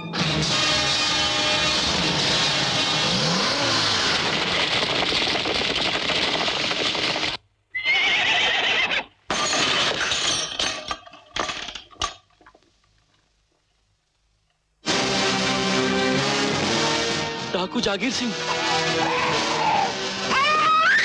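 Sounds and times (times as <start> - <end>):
sharp knocks and crashes: 3.7 - 7.4
horse whinnying: 7.7 - 10.0, 18.5 - 21.0.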